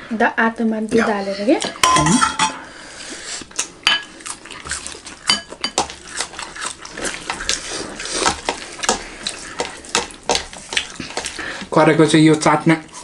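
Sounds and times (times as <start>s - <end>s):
pans and dishes clinking: 1.6s - 2.7s
wet chewing smacks: 3.4s - 11.7s
fingers working rice in pan: 4.5s - 13.0s.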